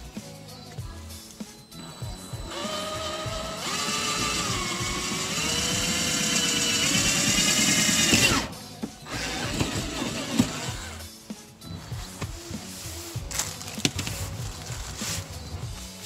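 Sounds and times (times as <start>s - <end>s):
power drill motor whine: 1.7s - 11.0s.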